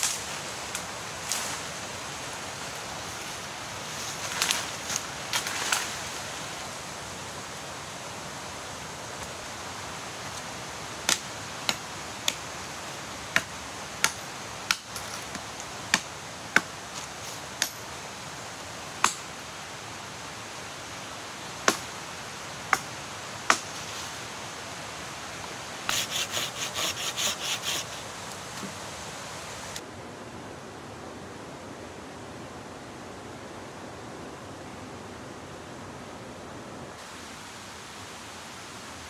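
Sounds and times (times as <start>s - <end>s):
background hiss: 0.0s - 39.0s
machete chopping wood: 23.5s - 23.8s.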